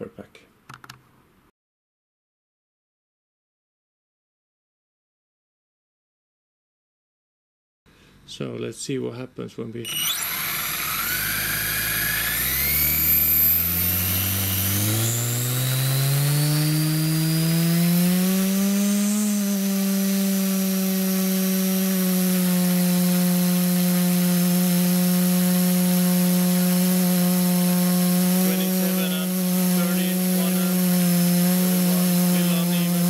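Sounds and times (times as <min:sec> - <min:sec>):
high motor and gear whine: 0:09.8 - 0:33.0
propeller hum: 0:09.9 - 0:33.0.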